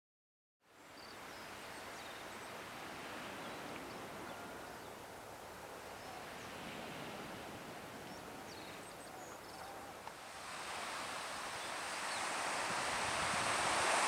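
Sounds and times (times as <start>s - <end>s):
sea waves washing: 10.1s - 14.0s.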